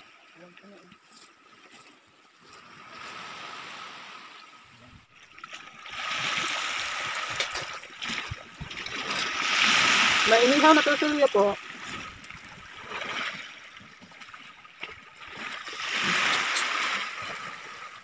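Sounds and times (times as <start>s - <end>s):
sea washing over pebbly shore: 5.9s - 13.6s, 15.3s - 18.0s.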